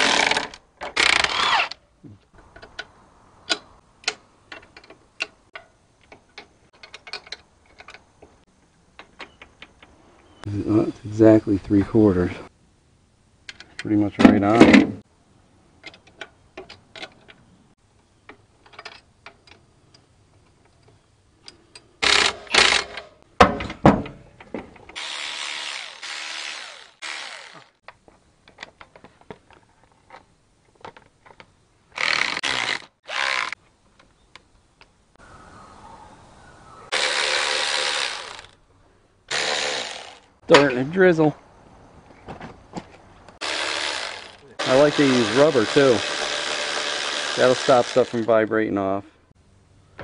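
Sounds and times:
cordless electric ratchet running: 32.0 - 33.6, 43.4 - 48.3.

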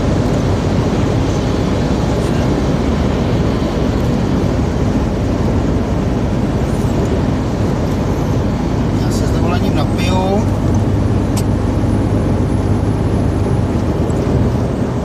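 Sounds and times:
truck engine drone: 0.0 - 15.0.

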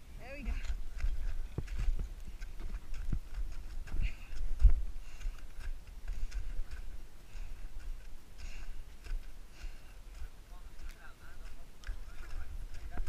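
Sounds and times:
low rumble of handling and wind: 0.0 - 13.0.

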